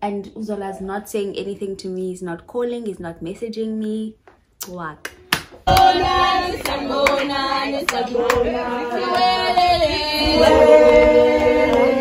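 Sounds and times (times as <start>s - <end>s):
sharp hand claps: 4.6s - 6.0s, 6.6s - 7.3s, 7.9s - 8.5s
voices singing long notes: 5.7s - 12.0s.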